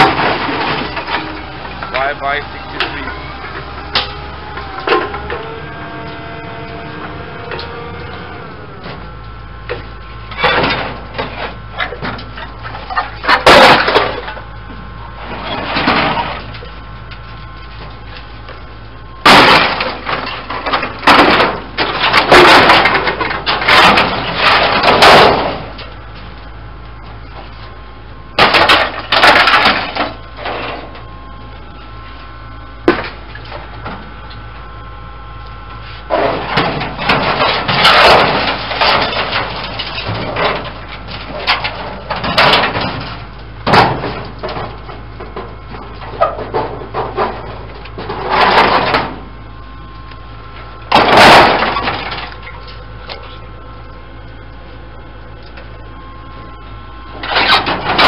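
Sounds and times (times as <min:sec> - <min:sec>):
sheet metal clattering and scraping: 0:36.1 - 0:49.2, 0:57.2 - 0:58.0.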